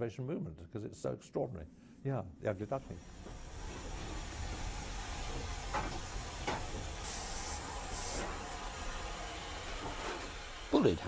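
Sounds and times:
steam locomotive rumbling: 0:02.6 - 0:11.0
steam hissing: 0:02.7 - 0:11.0.

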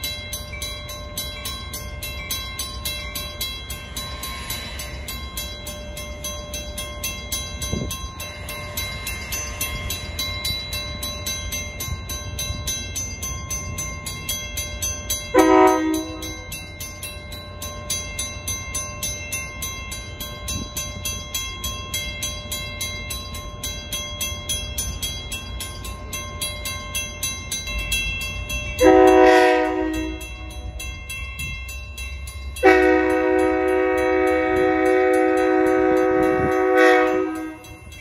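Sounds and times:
diesel train engine rumbling: 0:00.0 - 0:38.0
train horn blast: 0:15.3 - 0:16.4, 0:28.8 - 0:30.3, 0:32.6 - 0:37.7.

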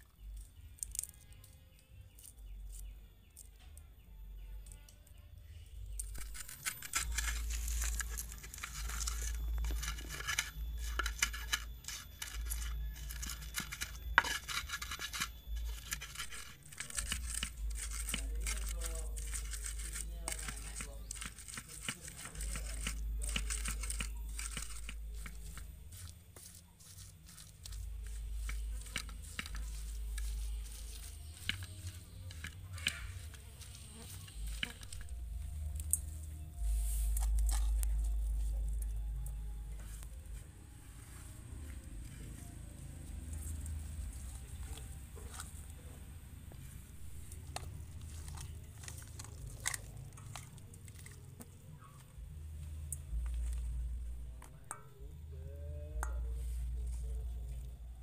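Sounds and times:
stone pestle grinding in clay mortar: 0:05.9 - 0:38.9, 0:46.8 - 0:52.0.

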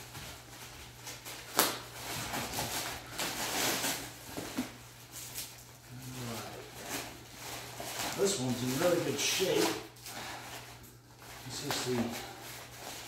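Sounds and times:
newspaper crinkling and rustling: 0:00.0 - 0:13.0.

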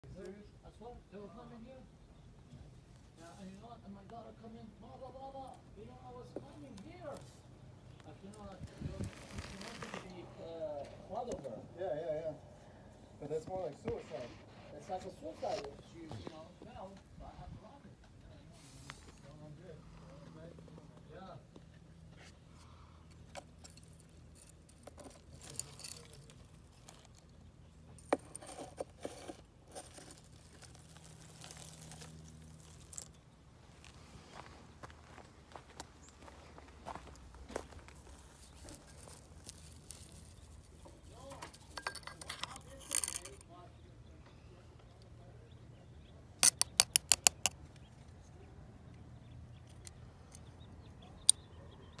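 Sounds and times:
rustling dry leaves: 0:08.3 - 0:10.2, 0:23.8 - 0:27.4, 0:28.0 - 0:35.2, 0:36.2 - 0:41.8
knife blade scraping plastic: 0:28.0 - 0:30.3, 0:41.5 - 0:43.4, 0:46.4 - 0:47.6.

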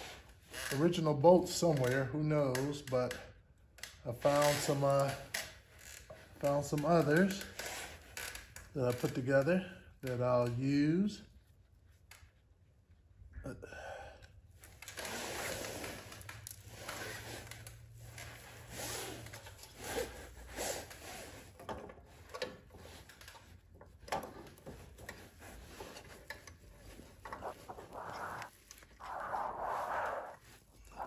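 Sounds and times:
hands rubbing and rustling: 0:24.7 - 0:31.0.

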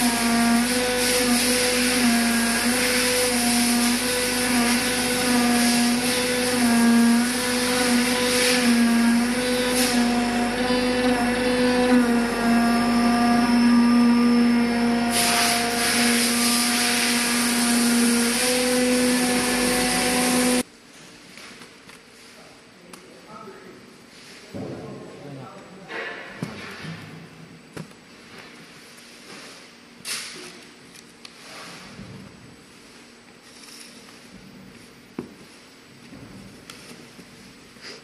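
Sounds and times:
cutting machine humming: 0:00.0 - 0:20.6.

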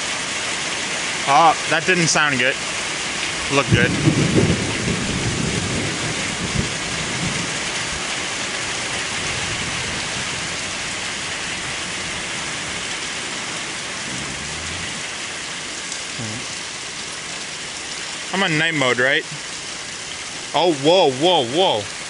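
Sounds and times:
steady rain falling: 0:00.0 - 0:22.0
low rumble of thunder: 0:03.7 - 0:08.1, 0:09.1 - 0:12.9, 0:14.0 - 0:15.1.

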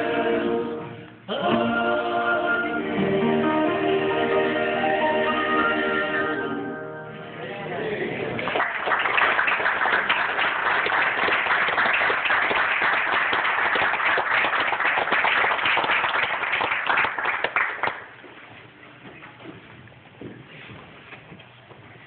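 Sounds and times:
crowd applauding: 0:08.3 - 0:18.1.

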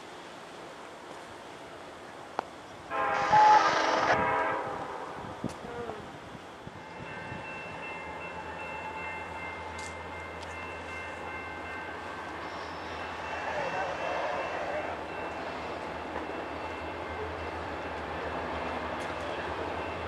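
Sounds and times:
locomotive horn blast: 0:02.9 - 0:05.2.

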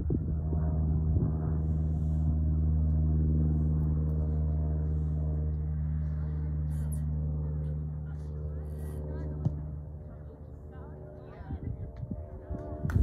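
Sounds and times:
low engine drone: 0:00.0 - 0:13.0.

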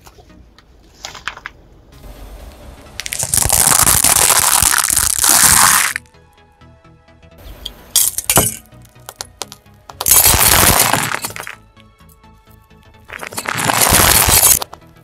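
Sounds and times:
car tyre crushing object: 0:03.0 - 0:06.0, 0:10.0 - 0:11.6, 0:13.1 - 0:14.7.

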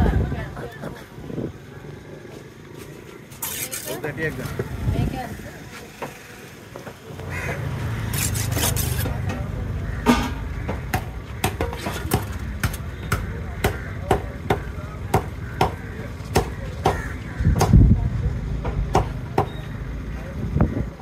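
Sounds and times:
knife chopping fish on wood: 0:10.7 - 0:17.8.

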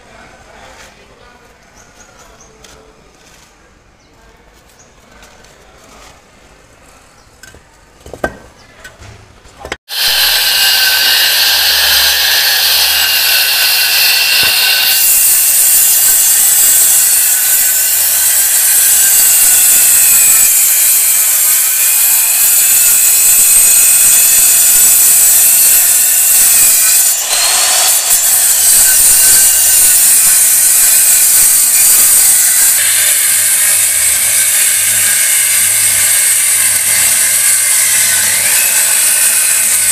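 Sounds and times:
circular saw cutting block: 0:09.9 - 0:39.9.

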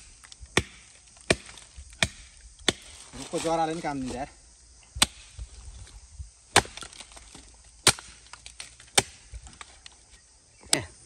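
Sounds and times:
axe chopping firewood: 0:00.5 - 0:03.0, 0:05.0 - 0:05.4, 0:06.5 - 0:09.7.

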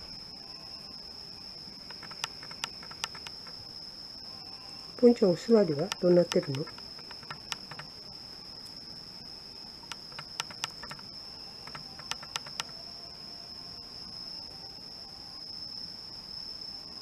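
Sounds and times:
insects trilling: 0:00.0 - 0:17.0
sharp clicks: 0:01.8 - 0:03.5, 0:05.8 - 0:07.9, 0:09.9 - 0:12.7.

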